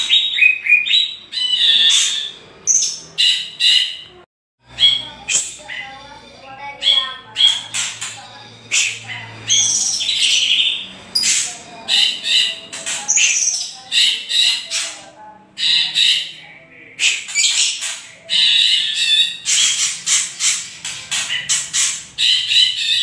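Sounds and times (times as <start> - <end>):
harsh rattling bird calls: 0.0 - 23.0.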